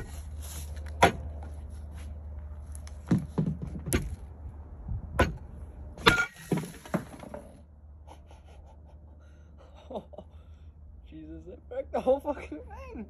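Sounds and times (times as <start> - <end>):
stick striking ice: 0.9 - 1.3, 6.0 - 7.3.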